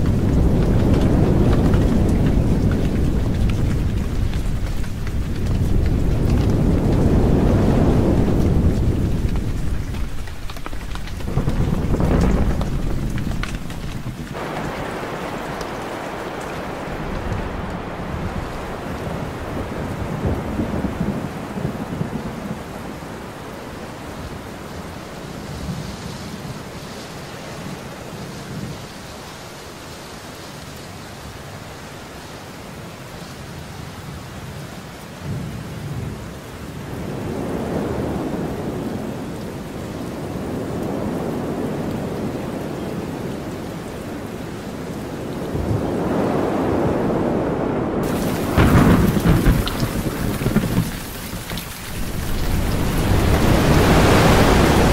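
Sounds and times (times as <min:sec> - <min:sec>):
loud thunder clap: 0:00.0 - 0:22.4, 0:45.5 - 0:54.9
thunder rumbling: 0:00.0 - 0:26.8, 0:35.3 - 0:54.9
steady rain: 0:00.0 - 0:54.9.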